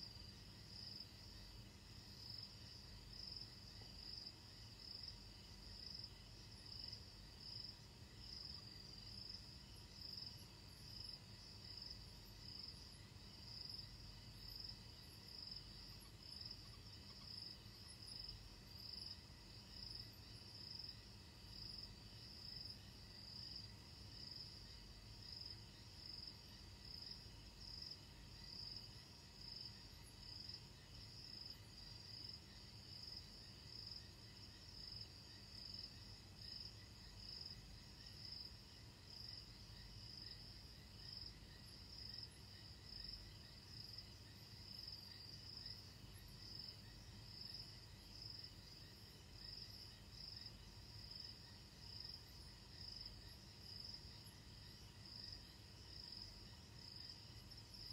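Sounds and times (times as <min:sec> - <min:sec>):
crickets chirping: 0:00.0 - 0:57.9.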